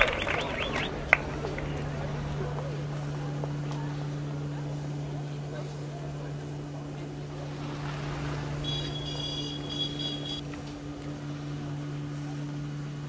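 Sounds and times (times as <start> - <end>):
low street hum: 0.0 - 13.0
high ringing tone: 8.6 - 10.4.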